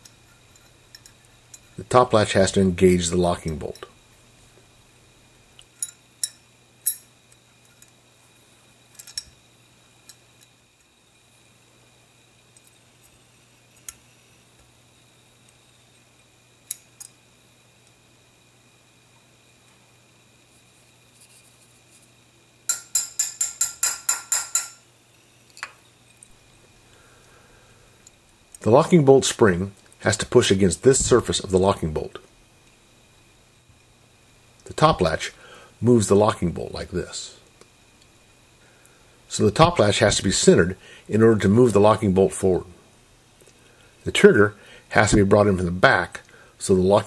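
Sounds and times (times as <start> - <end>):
mallet tapping metal punch: 22.7 - 24.8.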